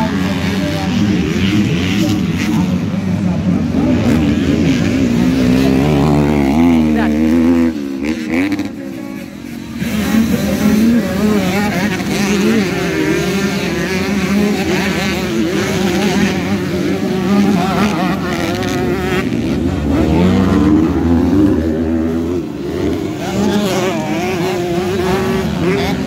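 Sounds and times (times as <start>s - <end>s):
dirt bike engines revving: 0.0s - 26.0s.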